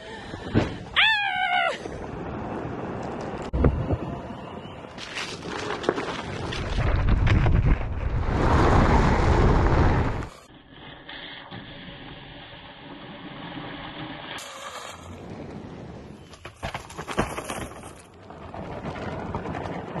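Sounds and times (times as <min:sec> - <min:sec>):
electric board motor and tyre: 0:08.1 - 0:20.0.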